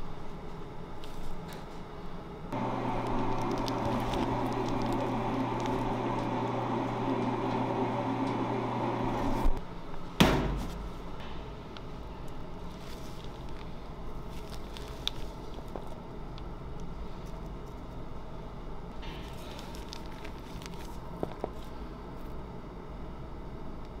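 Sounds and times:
motor humming: 2.6s - 9.6s
sharp knock: 10.2s - 11.4s.

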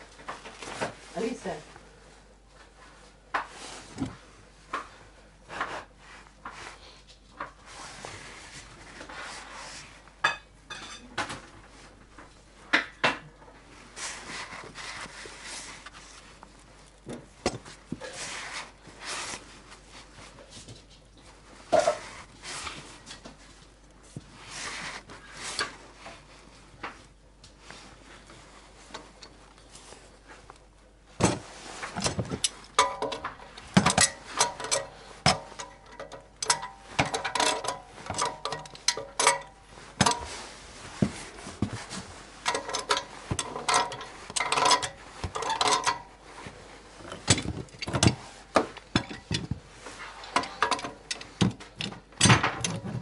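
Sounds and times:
metal tools clinking and knocking: 32.0s - 40.3s, 42.4s - 46.1s, 47.1s - 49.5s, 50.2s - 52.9s.

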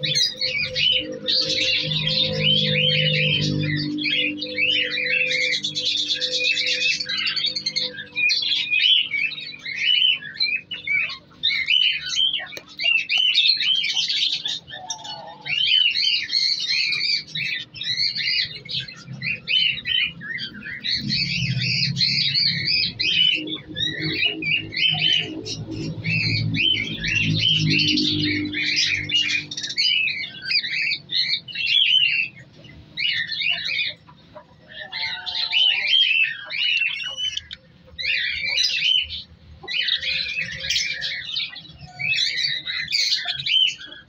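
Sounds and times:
budgerigars chattering: 0.0s - 44.0s.

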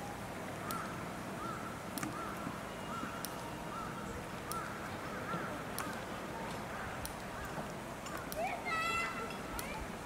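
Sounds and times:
bird calling: 0.6s - 6.1s.

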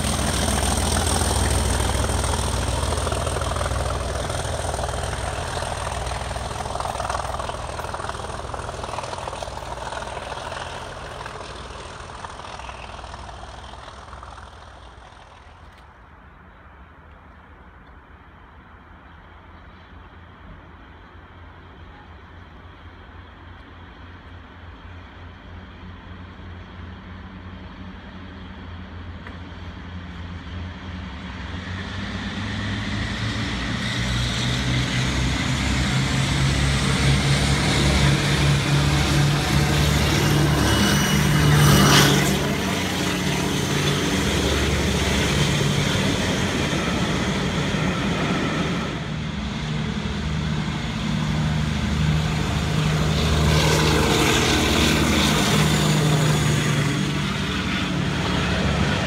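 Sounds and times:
coaches rumbling on rails: 0.0s - 16.8s, 32.9s - 59.0s
diesel locomotive engine working hard: 0.0s - 17.0s, 18.1s - 59.0s.

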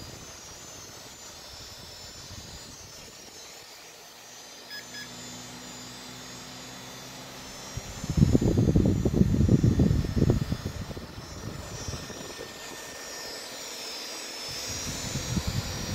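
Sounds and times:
loud gusty fan rumble: 0.0s - 3.3s, 5.2s - 13.8s, 14.4s - 15.9s
computer cooling fans whirring: 0.0s - 15.9s.

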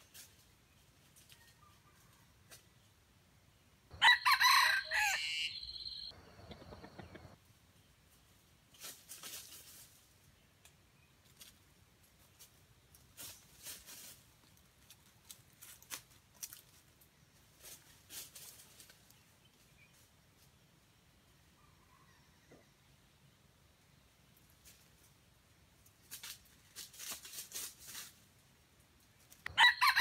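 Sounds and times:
crackles in dry leaves: 0.0s - 3.0s, 8.1s - 20.9s, 24.3s - 30.0s.

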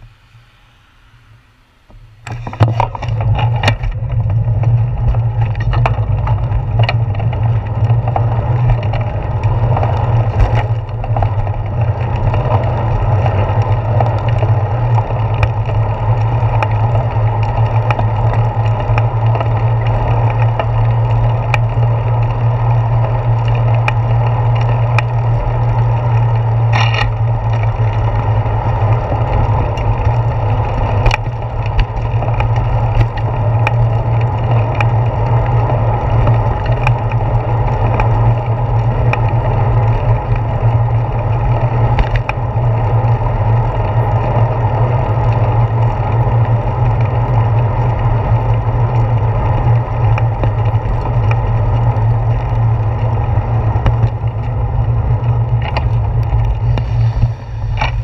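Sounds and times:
road rumble: 0.0s - 58.0s
clicks and knocks from bumps: 2.2s - 12.7s, 28.9s - 41.0s, 41.6s - 42.5s, 48.9s - 58.0s
wind buffeting: 48.7s - 58.0s.

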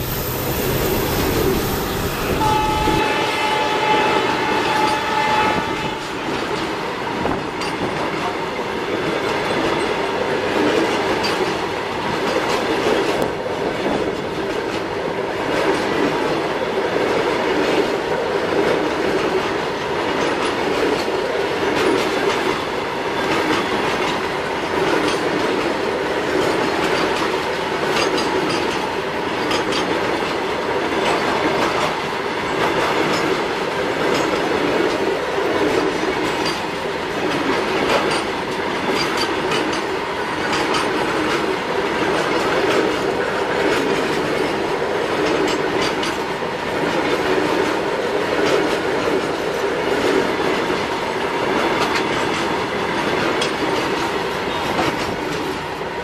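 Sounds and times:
steady high tone: 0.0s - 6.0s
wheels clacking over rail joints: 4.7s - 55.8s.

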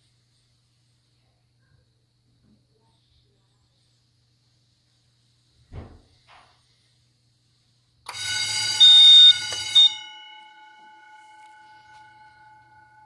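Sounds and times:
fire alarm bell ringing: 8.1s - 13.0s.

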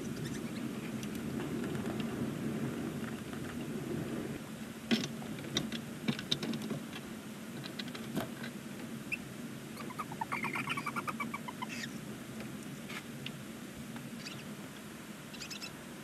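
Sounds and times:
owl chittering: 9.8s - 12.0s, 14.2s - 14.5s, 15.3s - 15.8s.

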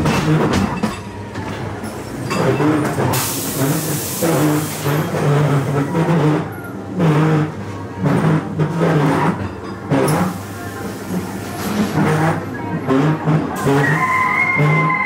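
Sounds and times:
loud hiss of air: 3.1s - 4.9s.

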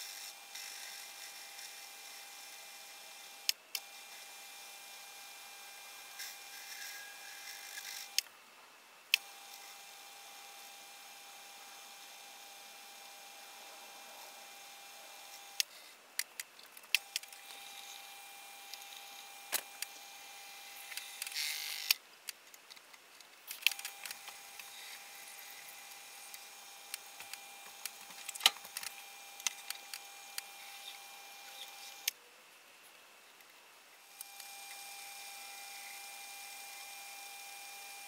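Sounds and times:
lathe whine: 0.0s - 8.2s, 34.0s - 38.0s.

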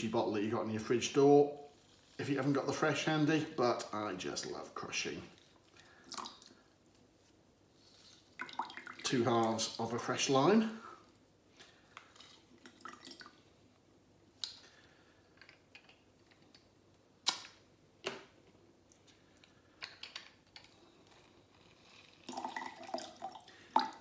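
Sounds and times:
juice squishing and dripping: 3.8s - 7.2s, 8.0s - 10.0s, 11.0s - 17.7s, 18.8s - 24.0s.

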